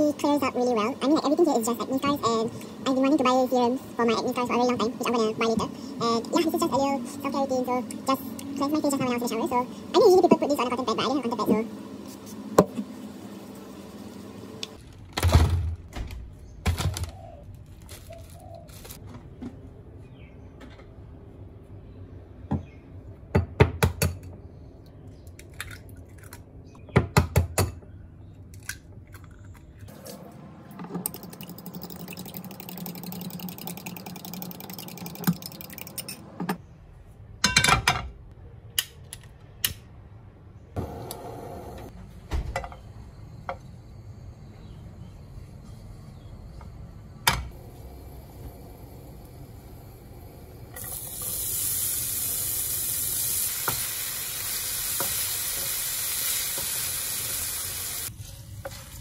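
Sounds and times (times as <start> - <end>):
kitchenware clinks and knocks: 37.4 - 38.2.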